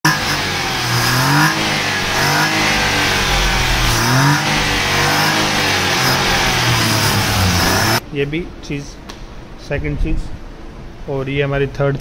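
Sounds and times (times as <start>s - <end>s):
car engine revving: 0.0s - 8.0s.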